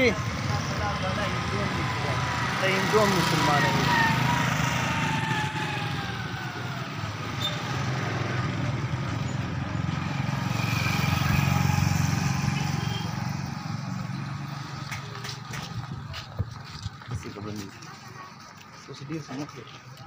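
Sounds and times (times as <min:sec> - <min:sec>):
motorcycle engine running: 0:07.4 - 0:17.0.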